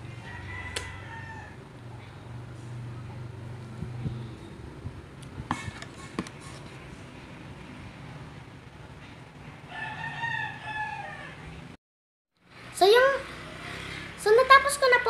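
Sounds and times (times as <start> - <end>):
rooster crowing: 0.0 - 1.6, 9.7 - 11.6.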